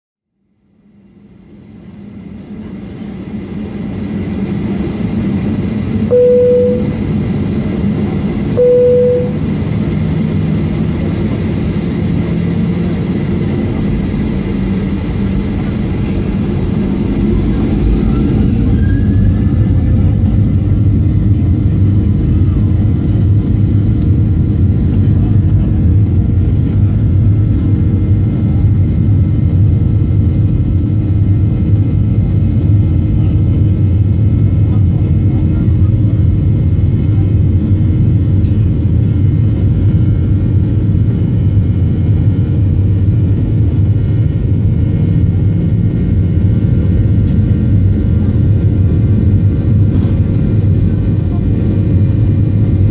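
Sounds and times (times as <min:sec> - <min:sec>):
low cabin rumble: 0:01.7 - 0:52.9
short loud tones: 0:06.1 - 0:07.0, 0:08.6 - 0:09.6.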